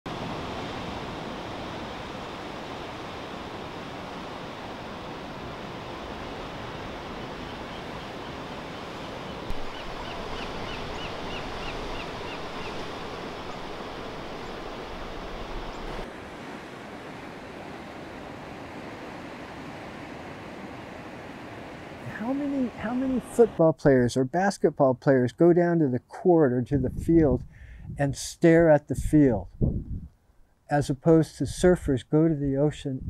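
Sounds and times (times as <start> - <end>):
ocean surf on beach: 0.1 - 23.7
bird chirping: 9.3 - 12.8.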